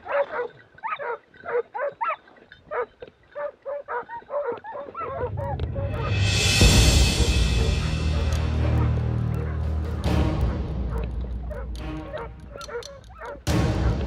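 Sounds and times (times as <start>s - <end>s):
dog yelping: 0.0s - 5.6s, 10.9s - 14.0s
low rushing noise: 5.0s - 12.5s.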